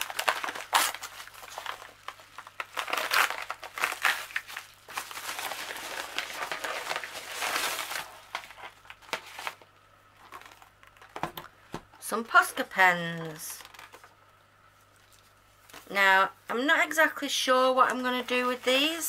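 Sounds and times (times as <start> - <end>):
plastic mailing bag crinkling: 0.0 - 11.5, 12.3 - 14.2, 17.8 - 19.0.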